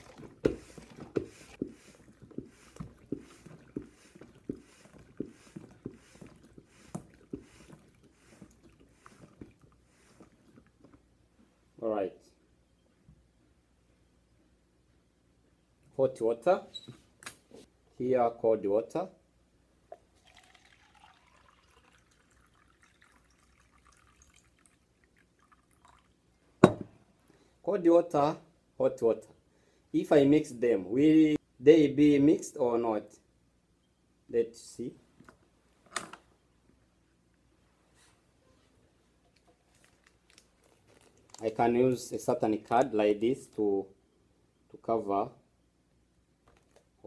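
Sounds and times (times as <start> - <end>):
water trickling into cup: 19.9 - 26.4
hot-water pot thumps and glugs: 26.6 - 27.0.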